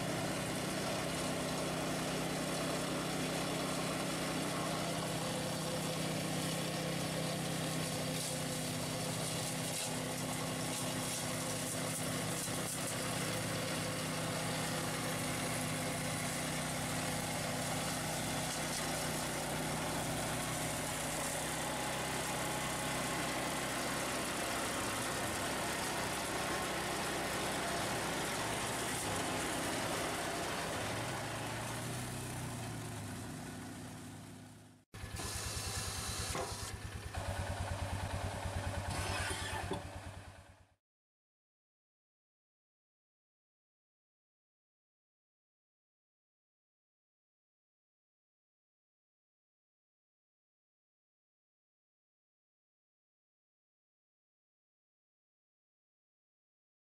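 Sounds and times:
flail mower engine drone: 0:00.0 - 0:40.7.

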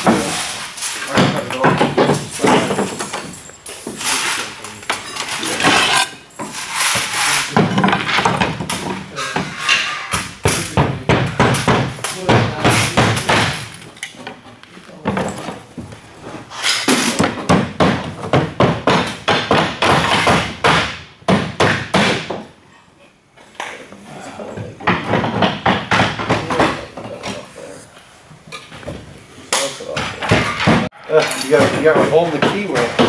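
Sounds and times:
hammers nailing roofing slates: 0:00.0 - 0:13.9, 0:16.8 - 0:22.6, 0:24.8 - 0:27.4, 0:29.6 - 0:33.0.

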